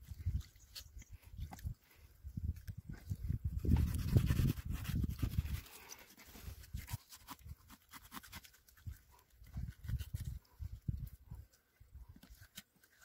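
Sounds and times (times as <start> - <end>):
knife scraping fish skin: 3.7 - 10.4.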